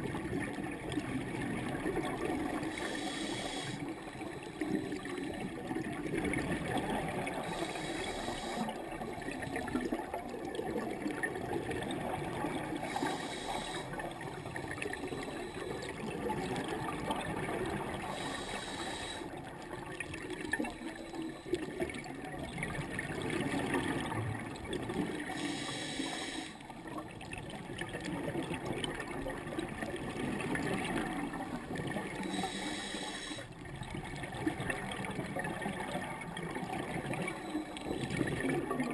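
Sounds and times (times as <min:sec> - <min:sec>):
regulator breath hiss: 0:02.7 - 0:05.0, 0:07.4 - 0:08.8, 0:12.8 - 0:14.0, 0:18.1 - 0:19.4, 0:25.4 - 0:26.6, 0:32.2 - 0:33.5.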